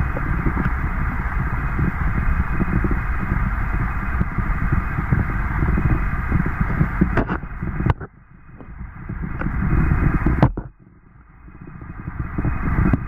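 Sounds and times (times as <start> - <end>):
dull low rumble: 0.0 - 13.0
muffled underwater stream rush: 0.0 - 13.0.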